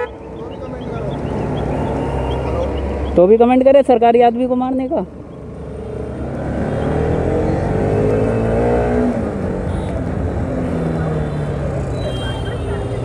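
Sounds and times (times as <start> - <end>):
motorcycle engine accelerating: 5.7 - 9.7.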